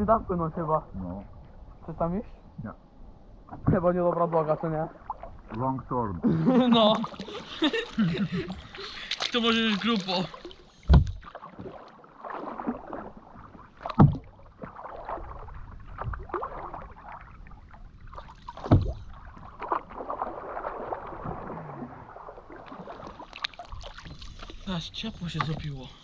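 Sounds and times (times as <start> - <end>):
paddles splashing in water: 3.4 - 26.0
paddle scraping: 6.6 - 17.2, 18.1 - 25.8.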